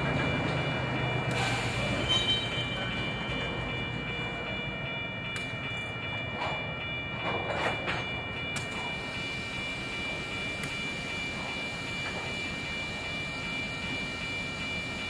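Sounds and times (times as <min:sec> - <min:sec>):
diesel locomotive engine rumble: 0:00.0 - 0:15.0.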